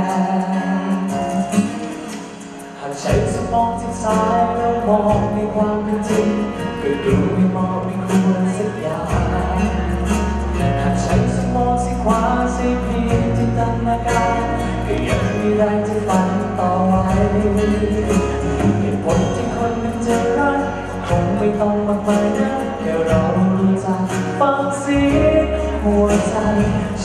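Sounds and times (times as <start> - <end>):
band playing: 0.0 - 27.0
man singing into microphone: 0.0 - 27.0.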